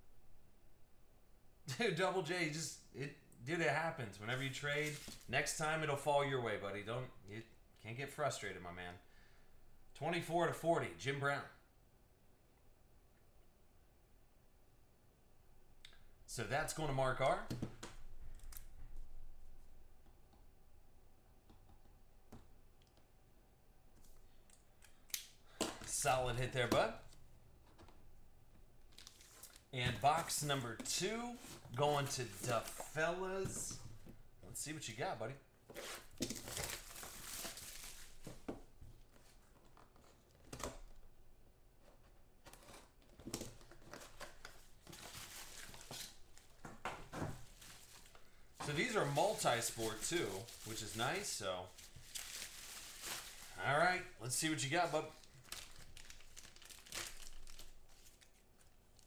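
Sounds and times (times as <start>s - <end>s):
bubble wrap crinkling: 28.8s - 33.6s, 35.8s - 38.5s, 47.4s - 59.0s.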